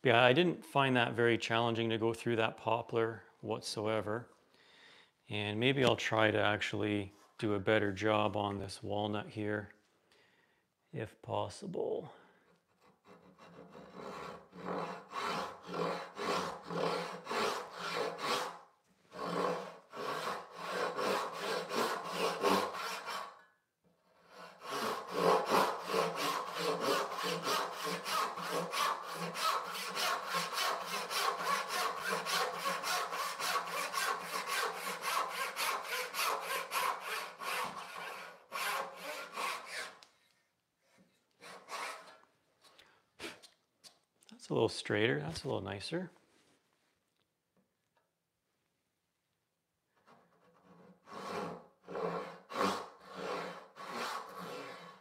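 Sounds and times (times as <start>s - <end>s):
hand saw cutting wood: 12.5s - 40.1s, 41.4s - 42.2s, 50.0s - 55.0s.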